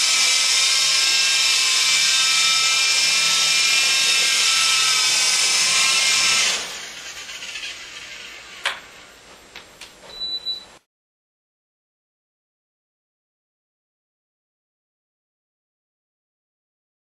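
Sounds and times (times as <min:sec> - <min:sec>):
toy helicopter motor whining: 0:00.0 - 0:09.1.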